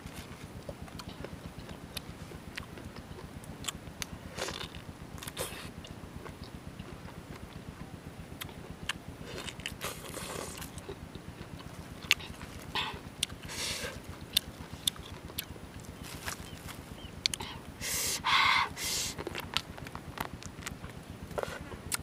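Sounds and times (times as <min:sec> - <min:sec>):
biting and chewing wet mouth sounds: 0:00.5 - 0:16.5.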